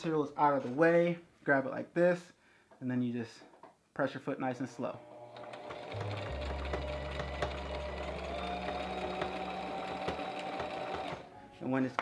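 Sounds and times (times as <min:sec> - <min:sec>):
sewing machine motor whine: 0:05.0 - 0:11.3.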